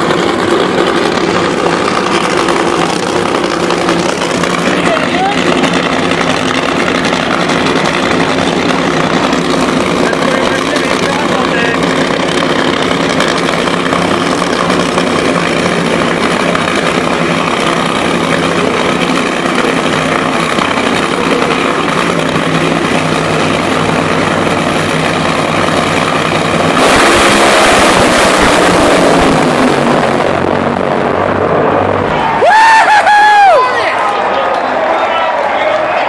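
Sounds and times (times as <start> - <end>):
drag racing engines running: 0.0 - 36.0
engines blasting at full throttle: 0.0 - 36.0.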